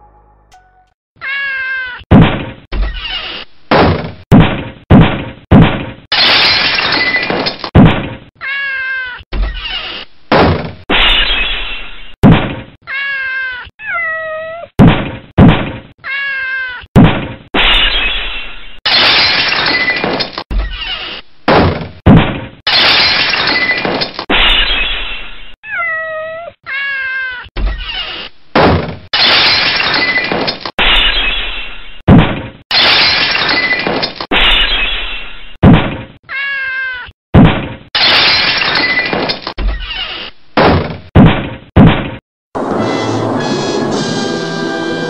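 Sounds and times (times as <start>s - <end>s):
cartoon kitten meowing: 1.2s - 2.0s, 8.4s - 9.9s, 12.8s - 14.7s, 16.0s - 16.9s, 25.6s - 28.2s, 36.2s - 37.1s.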